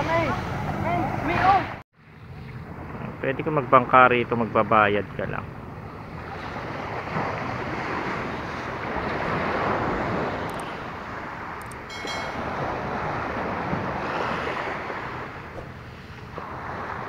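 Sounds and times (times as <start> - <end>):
wind buffeting microphone: 5.4 - 17.0.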